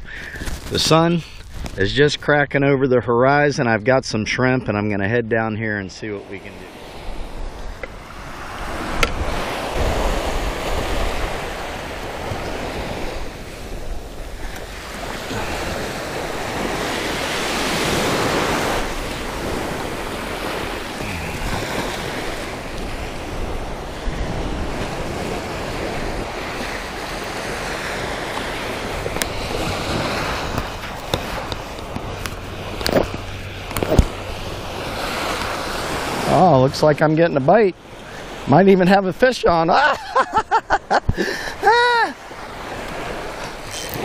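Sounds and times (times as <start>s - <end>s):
waves breaking on sand: 6.0s - 44.0s
wind buffeting microphone: 6.3s - 36.3s.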